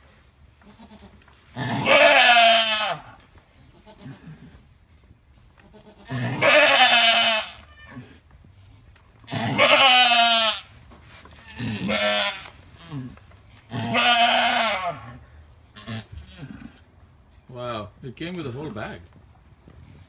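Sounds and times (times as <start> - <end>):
goat bleating loudly: 0.6 - 4.4, 5.6 - 8.2, 9.3 - 10.7, 11.3 - 16.6.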